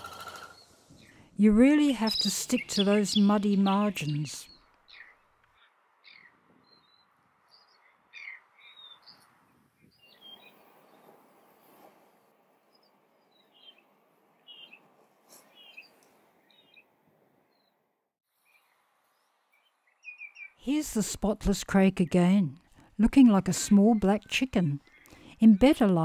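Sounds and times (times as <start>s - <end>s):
bird chirping: 0.0s - 11.6s, 12.2s - 16.9s, 17.5s - 20.6s.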